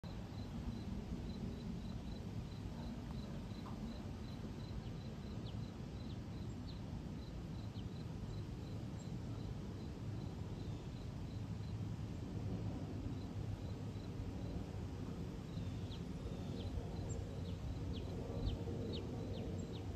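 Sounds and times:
insect chirping: 0.1 - 11.8, 13.1 - 14.5
jet engines rumbling overhead: 0.1 - 19.9.

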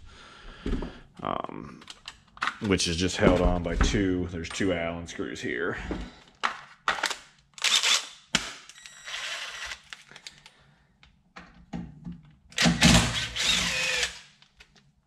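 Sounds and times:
cordless power driver running: 13.0 - 14.2.

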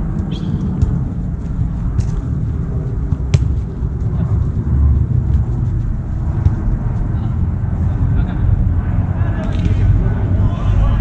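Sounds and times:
wind rumble on microphone: 0.0 - 11.0
football being kicked: 0.2 - 2.2, 3.0 - 3.7, 6.2 - 7.0.

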